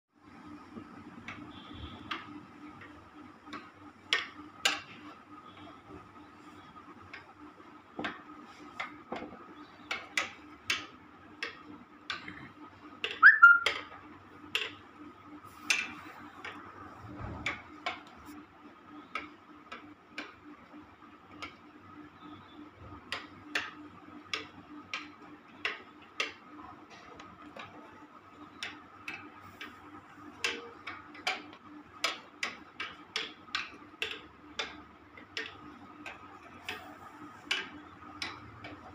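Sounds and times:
faint steady hum: 0:00.2 - 0:38.9
wire hanger tapping on wood: 0:08.0 - 0:12.4, 0:28.5 - 0:38.9
short high squeak: 0:13.2 - 0:13.7.

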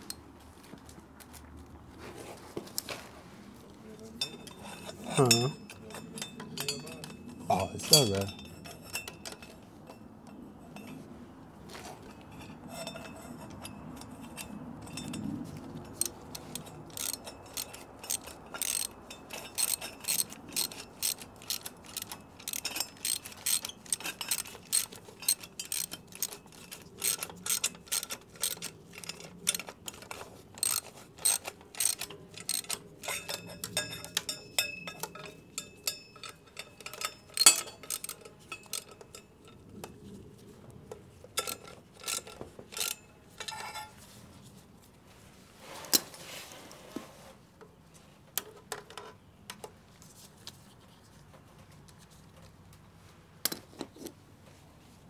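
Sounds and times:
ratchet wrench clicking: 0:16.0 - 0:38.9, 0:41.4 - 0:43.0.

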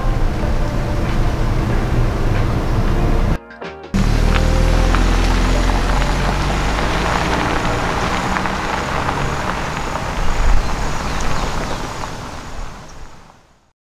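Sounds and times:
pickup truck engine running: 0:00.0 - 0:03.4, 0:04.0 - 0:12.9
tyres on loose dirt: 0:04.0 - 0:13.5.

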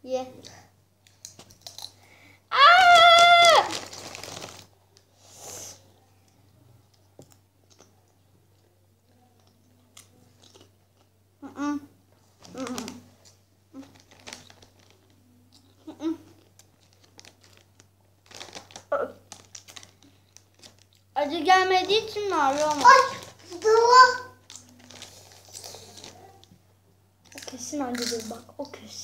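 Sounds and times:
child squealing: 0:02.5 - 0:03.8
foil crisp bag crinkling: 0:02.9 - 0:04.7, 0:12.4 - 0:15.2, 0:16.4 - 0:26.4.

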